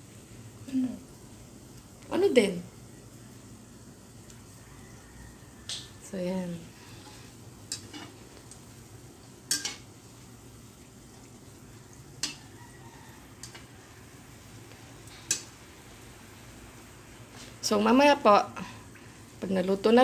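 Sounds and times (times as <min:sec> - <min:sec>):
food deep-frying in oil: 0:00.0 - 0:20.0
metal spatula clinking on pan: 0:07.7 - 0:08.1, 0:09.5 - 0:09.8, 0:12.2 - 0:12.4.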